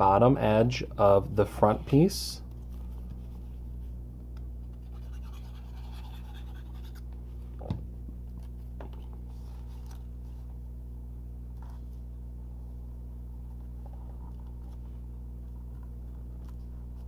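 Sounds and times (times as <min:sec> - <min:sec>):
steady low hum: 0:00.0 - 0:17.0
faint scratching: 0:04.7 - 0:07.0.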